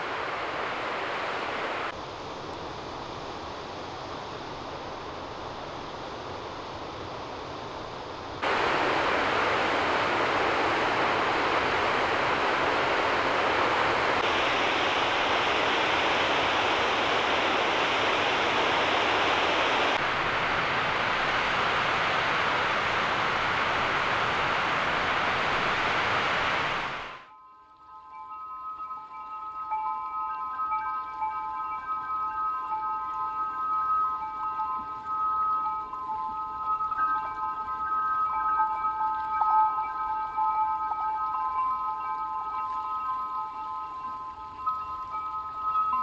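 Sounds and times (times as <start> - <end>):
steady rushing outdoor noise: 0.0 - 27.3.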